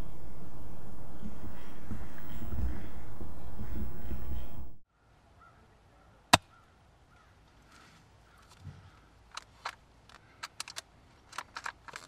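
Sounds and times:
small sharp clicks and ticks: 9.3s - 12.0s.

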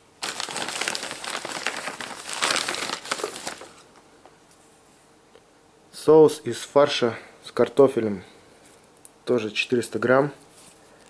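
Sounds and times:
paper bag crinkling: 0.0s - 3.9s.

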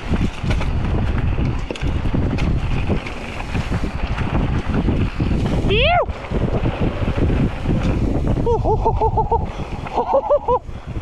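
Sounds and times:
bike clicks and knocks: 0.0s - 5.6s
tires rolling over dirt and leaves: 0.0s - 11.0s
wind buffeting microphone: 0.0s - 11.0s.

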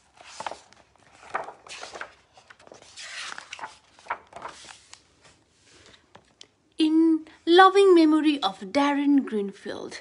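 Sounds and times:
book pages turning: 0.0s - 6.4s
paper rustling: 0.0s - 6.4s.

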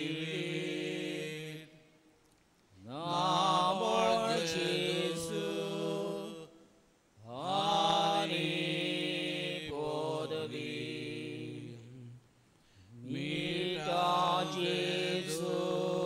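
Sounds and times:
person singing a hymn: 0.0s - 1.8s, 2.8s - 6.5s, 7.3s - 12.2s, 13.0s - 16.0s
breath: 12.6s - 13.0s.

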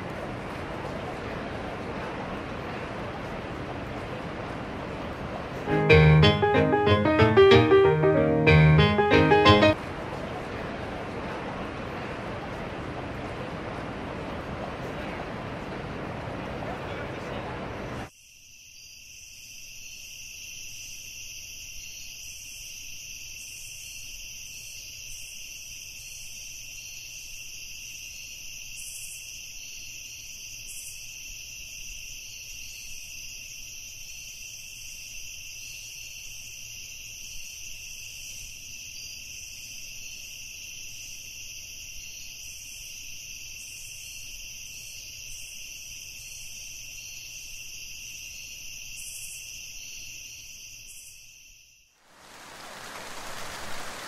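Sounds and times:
insects chirping: 18.1s - 54.0s.

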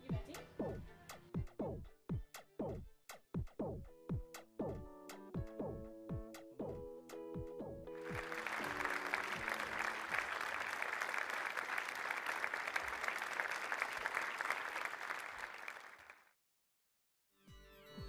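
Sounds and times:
audience applauding: 8.0s - 16.4s.

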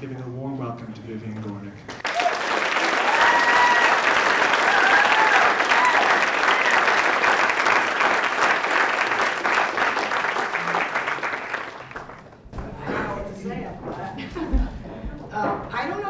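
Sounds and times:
audience applauding: 1.9s - 12.4s.

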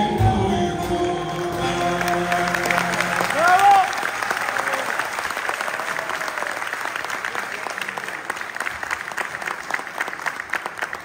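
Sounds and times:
audience clapping: 1.3s - 11.0s.

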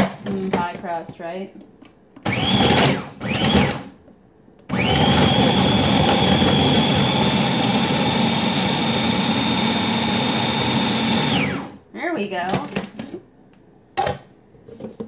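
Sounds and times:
food processor motor whining: 2.2s - 4.0s, 4.7s - 11.8s.

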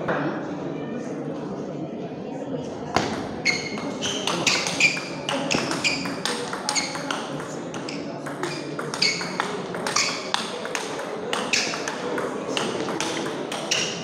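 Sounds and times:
table tennis ball pinging: 3.0s - 14.0s.

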